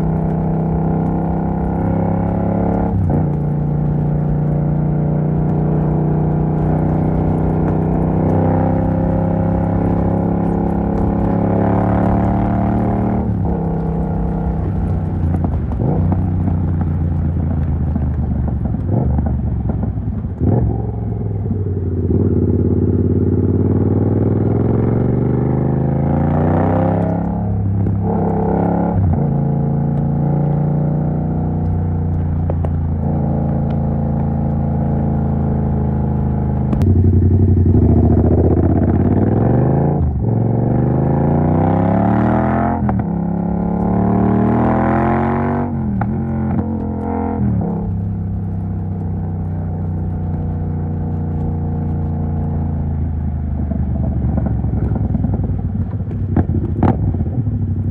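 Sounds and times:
motorcycle engine revving: 0:00.0 - 0:57.9.

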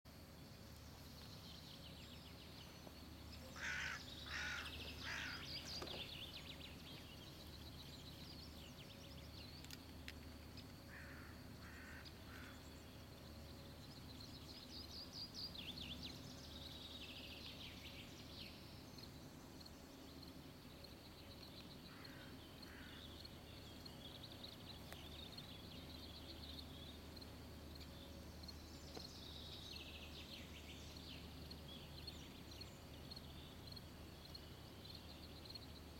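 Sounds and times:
faint low hum: 0:00.1 - 0:35.9
birds singing and calling: 0:01.2 - 0:35.9
harsh bird calls: 0:03.6 - 0:06.0.

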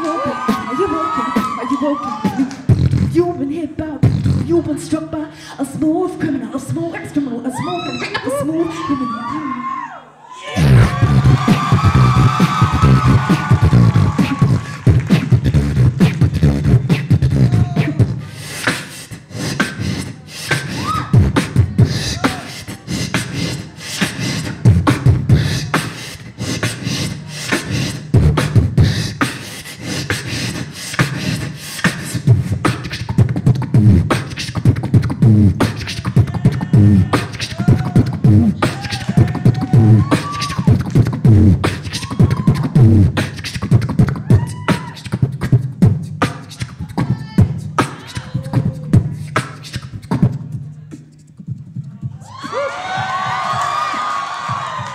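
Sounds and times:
woman beatboxing: 0:00.0 - 0:09.6, 0:10.6 - 0:52.5
pitched vocal slides: 0:10.4 - 0:52.0.

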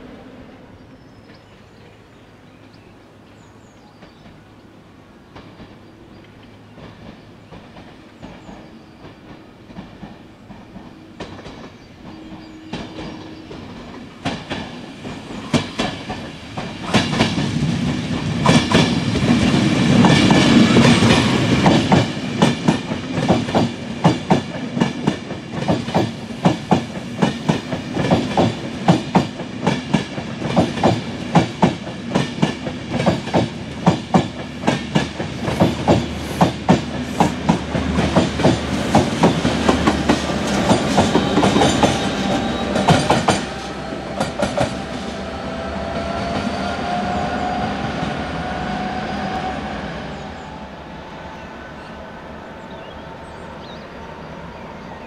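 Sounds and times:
train low rumble: 0:00.0 - 0:55.0
train wheels clacking on rail joints: 0:05.3 - 0:45.2.

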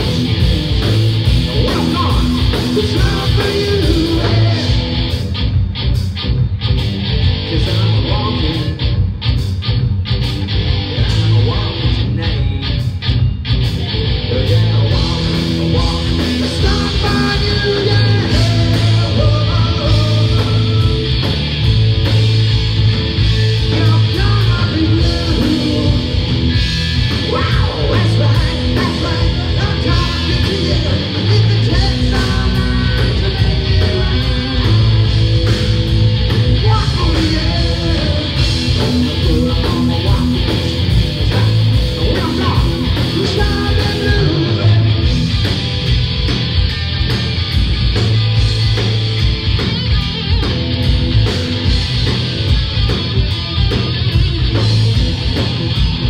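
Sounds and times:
drum kit: 0:00.0 - 0:56.0
electric guitars: 0:00.0 - 0:56.0
lead singer's vocals: 0:01.6 - 0:04.9, 0:36.6 - 0:40.4.

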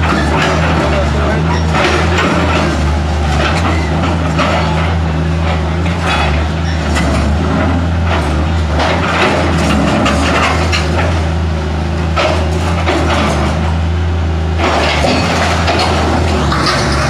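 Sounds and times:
concrete rubble cracking and crunching: 0:00.0 - 0:11.3, 0:14.6 - 0:17.0
diesel excavator engine running: 0:00.0 - 0:17.0.

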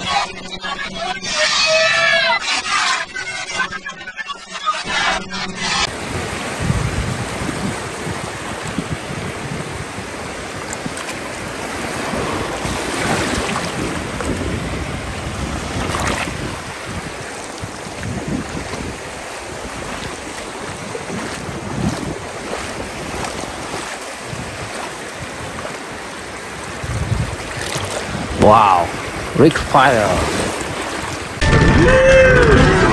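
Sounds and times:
wind rumbling on microphone: 0:05.9 - 0:29.4
small waves washing ashore: 0:05.9 - 0:31.4.

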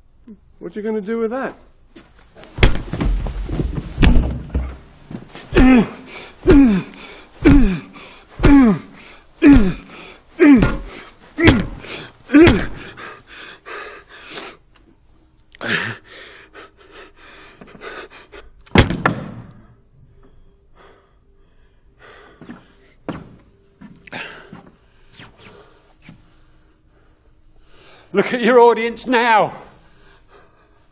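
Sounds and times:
loud thud: 0:02.6 - 0:04.8, 0:18.8 - 0:19.5
man grunting with effort: 0:05.5 - 0:13.0
panting breaths: 0:05.9 - 0:14.6, 0:16.1 - 0:18.6, 0:29.8 - 0:30.9.

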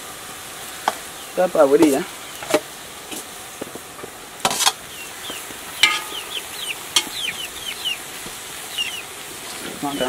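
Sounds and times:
metal basin scraping and clanking: 0:04.4 - 0:04.8, 0:05.8 - 0:07.2
chickens cheeping: 0:04.7 - 0:10.0.

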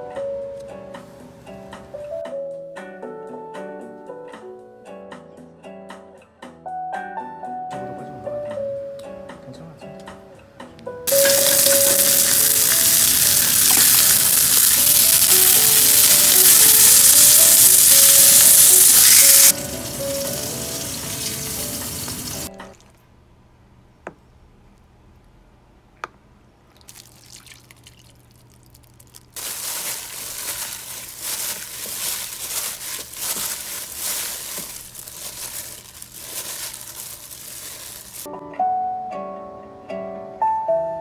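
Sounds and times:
soft piano music: 0:00.0 - 0:05.5, 0:06.6 - 0:22.7, 0:37.6 - 0:41.0
steak sizzling in a pan: 0:11.1 - 0:22.5
vegetables tossed in a metal bowl: 0:29.4 - 0:38.3.

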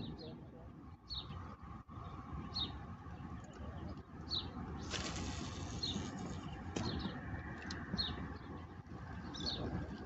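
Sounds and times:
short rushing hiss: 0:04.9 - 0:06.4.

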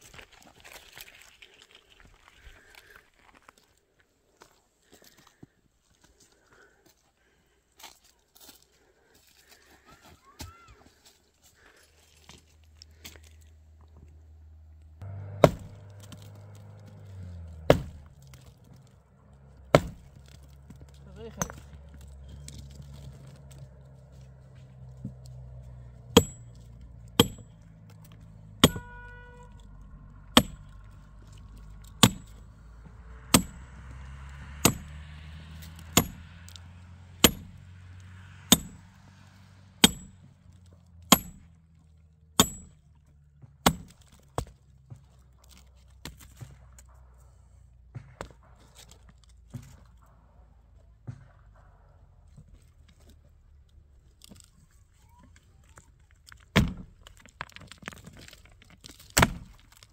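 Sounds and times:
axe chopping wood: 0:15.0 - 0:18.8, 0:19.6 - 0:23.6, 0:26.0 - 0:29.3, 0:30.3 - 0:36.6, 0:37.2 - 0:37.7, 0:38.4 - 0:39.0, 0:39.8 - 0:40.3, 0:41.0 - 0:41.6, 0:42.4 - 0:46.7, 0:47.9 - 0:48.9, 0:56.5 - 0:57.0, 0:58.2 - 0:59.9.

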